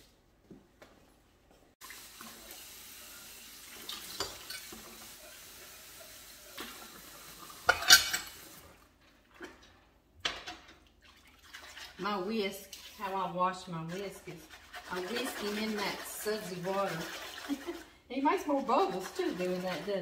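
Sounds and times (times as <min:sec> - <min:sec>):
dishes clinking: 0:04.0 - 0:05.0, 0:07.6 - 0:08.5
dishware clattering: 0:04.1 - 0:04.9, 0:07.6 - 0:08.4.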